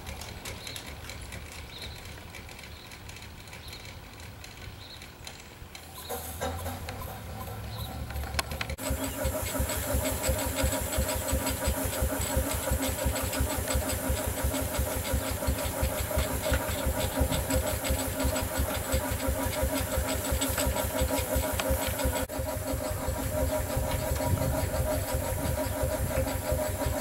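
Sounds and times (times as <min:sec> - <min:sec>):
steam engine exhaust chuffing: 0:00.0 - 0:27.0
steam hissing: 0:08.8 - 0:27.0.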